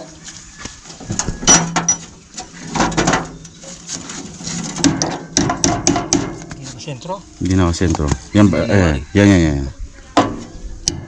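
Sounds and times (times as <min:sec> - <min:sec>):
steel clanks and knocks: 0:01.0 - 0:06.6.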